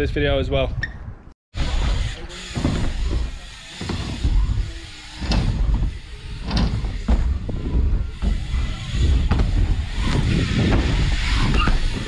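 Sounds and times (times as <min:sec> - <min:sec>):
bikes knocking and clattering: 0:01.6 - 0:12.0
bikes rolling over wooden ramps: 0:01.6 - 0:12.0
wind rumbling on microphone: 0:03.8 - 0:12.0.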